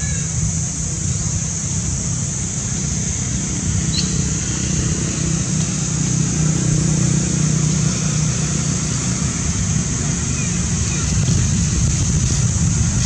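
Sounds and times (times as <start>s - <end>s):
engine rumbling: 0.0s - 13.0s
high hiss: 0.0s - 13.0s.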